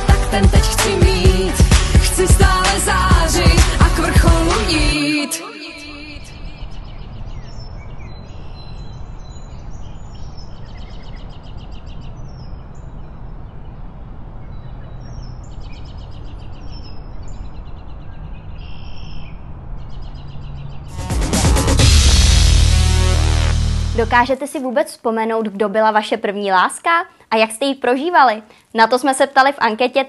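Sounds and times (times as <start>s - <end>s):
loud music: 0.0s - 6.3s, 20.9s - 24.3s
birds chirping: 1.1s - 22.1s
steady low rumble: 20.8s - 24.3s.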